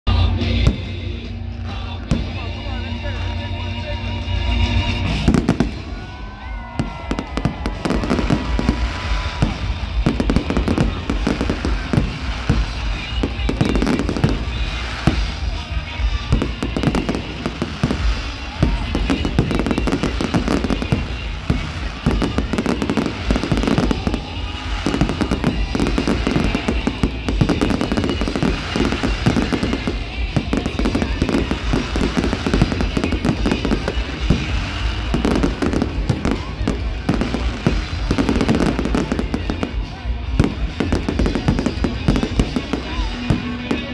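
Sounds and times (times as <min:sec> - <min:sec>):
fireworks bangs and crackles: 0:00.1 - 0:43.9.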